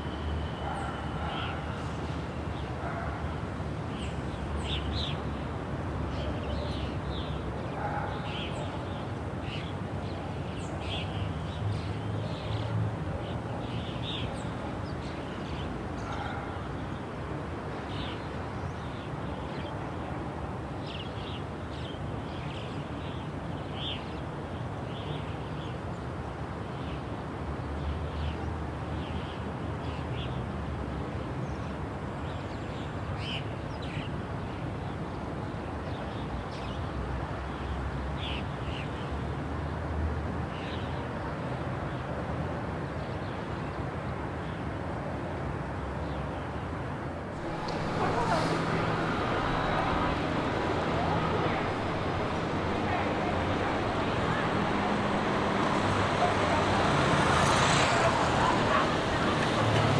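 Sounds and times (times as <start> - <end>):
city traffic rumble: 0.0 - 59.9
birds chirping: 47.4 - 59.9.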